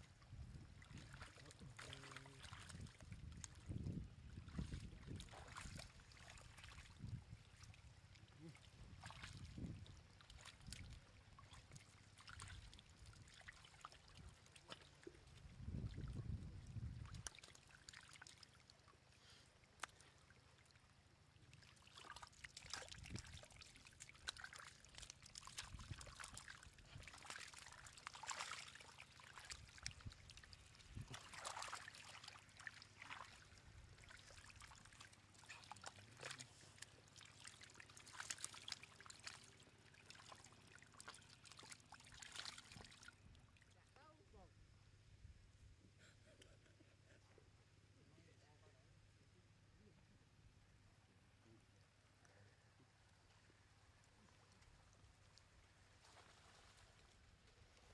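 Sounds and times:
fish splashing in shallow water: 0.7 - 43.7, 52.9 - 57.9
water trickling: 21.4 - 43.6.

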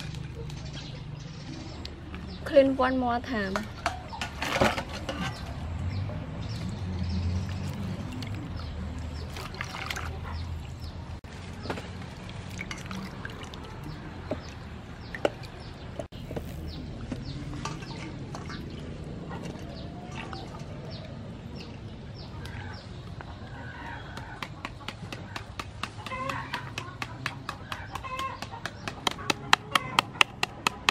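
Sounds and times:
water splashing in a steel bowl: 6.6 - 10.4, 11.3 - 16.0, 17.4 - 21.8
chickens clucking: 22.2 - 30.5.

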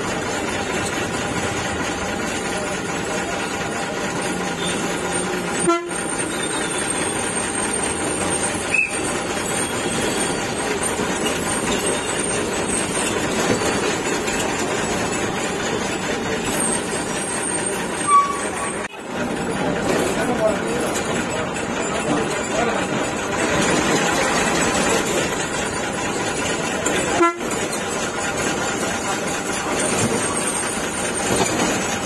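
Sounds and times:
bus engine and road noise: 0.0 - 32.0
horn toots: 5.5 - 6.8, 27.1 - 27.6.

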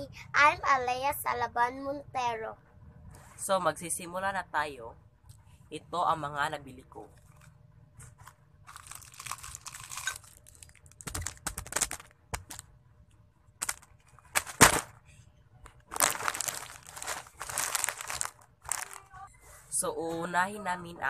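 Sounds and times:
plastic packaging crinkling: 8.6 - 12.7, 13.6 - 14.9, 15.8 - 19.2.

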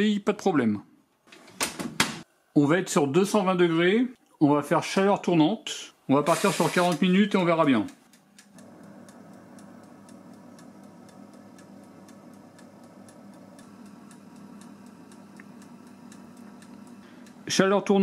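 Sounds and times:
oven fan humming: 5.4 - 18.0
mechanical dial timer ticking: 6.8 - 18.0.

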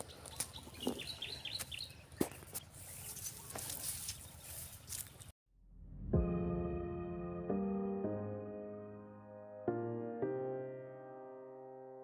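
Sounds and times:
footsteps: 0.0 - 5.3
leaves rustling: 0.0 - 5.3.

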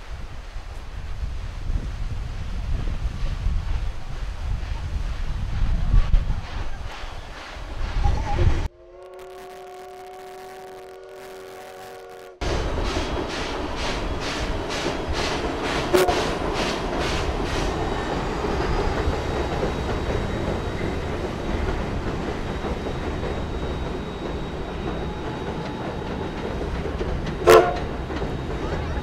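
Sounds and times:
steam locomotive chuffing: 1.0 - 9.0, 12.4 - 29.0
steam whistle blast: 8.7 - 12.5, 15.9 - 16.4, 27.4 - 28.0
coaches clattering on bridge: 12.4 - 29.0.

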